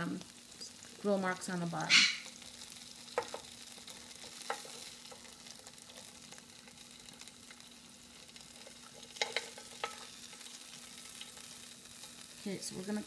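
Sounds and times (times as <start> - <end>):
fish sizzling in a grill pan: 0.0 - 13.0
tongs clicking against pan: 3.1 - 5.3, 8.4 - 12.2.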